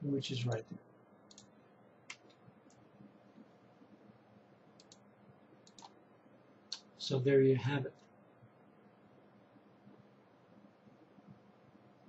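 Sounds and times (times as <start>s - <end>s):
faint computer input clicks: 1.3s - 2.8s, 4.8s - 6.0s.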